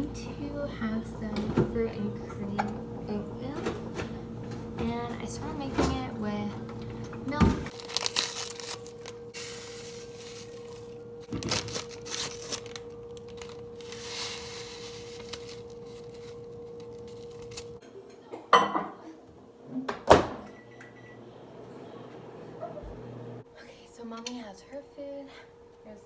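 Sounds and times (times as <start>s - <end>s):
microwave oven humming: 0.0s - 26.0s
paper packet tearing: 7.7s - 17.8s.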